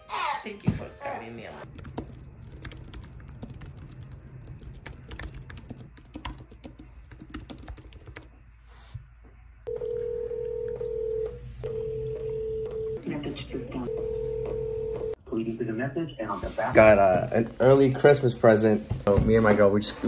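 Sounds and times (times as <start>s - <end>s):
steady telephone line tone: 9.7s - 13.1s, 13.8s - 15.2s.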